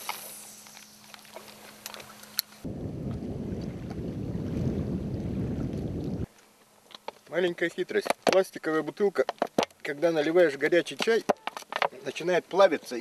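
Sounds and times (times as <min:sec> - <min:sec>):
wind buffeting microphone: 0:02.6 - 0:06.3.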